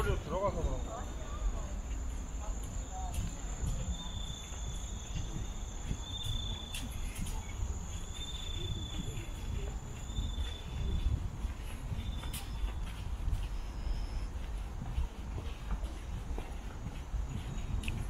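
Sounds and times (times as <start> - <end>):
low insect trill: 0.0 - 11.2.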